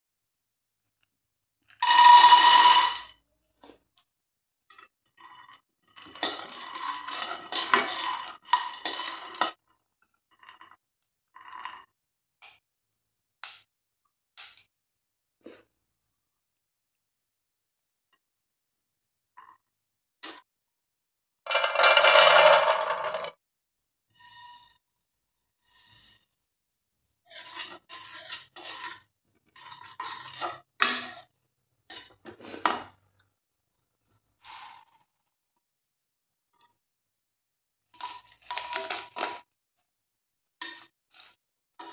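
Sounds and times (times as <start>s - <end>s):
spoon scraping a pan: 5.1s - 9.6s, 27.3s - 31.3s
peanuts rattling in a pan: 21.5s - 23.3s.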